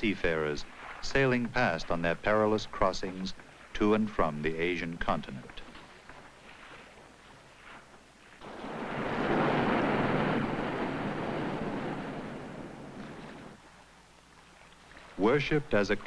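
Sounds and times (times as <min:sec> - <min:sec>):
wave breaking against rocks: 0:08.4 - 0:13.7.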